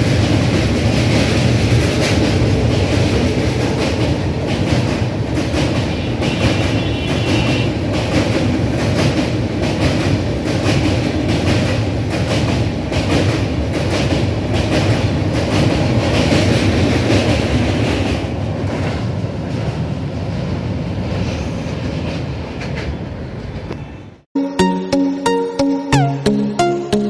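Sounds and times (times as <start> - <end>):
train wheels clattering over rail joints: 0.0 - 19.9
music: 24.4 - 27.0.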